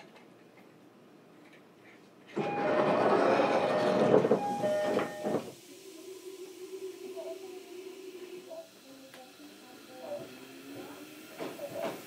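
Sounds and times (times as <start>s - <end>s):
train rushing: 2.4s - 6.6s, 9.3s - 12.0s.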